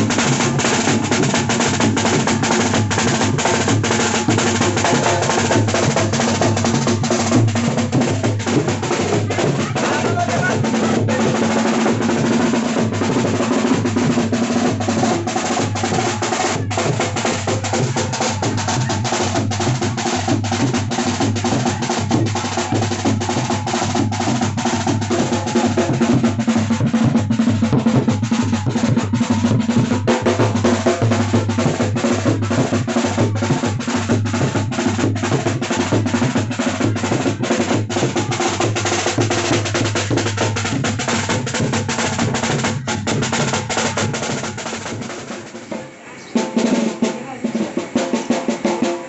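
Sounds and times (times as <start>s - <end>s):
bass drum beating: 0.0s - 49.0s
snare drum rolls: 0.0s - 49.0s.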